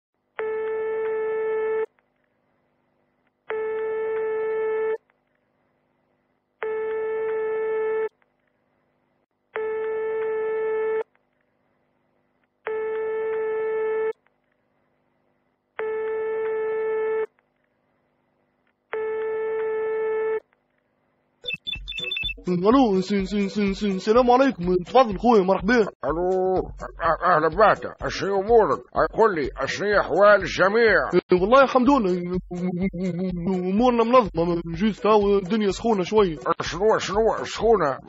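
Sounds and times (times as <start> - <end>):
telephone ringback tone: 21.5 - 22.4.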